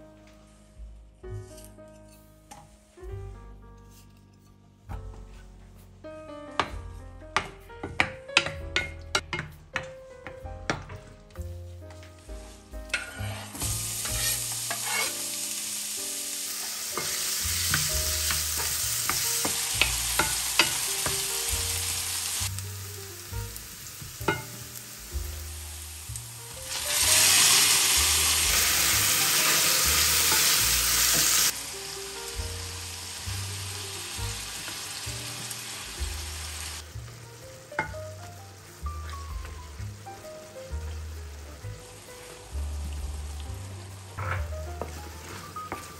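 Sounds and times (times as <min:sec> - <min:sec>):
onion and garlic sizzling in oil: 0:06.6 - 0:45.9
spatula tapping and scraping pan: 0:07.4 - 0:11.1, 0:12.9 - 0:15.2, 0:17.0 - 0:21.4, 0:24.2 - 0:24.6
tomatoes sizzling in hot oil: 0:12.2 - 0:45.9
wooden spoon stirring sauce: 0:44.4 - 0:45.9.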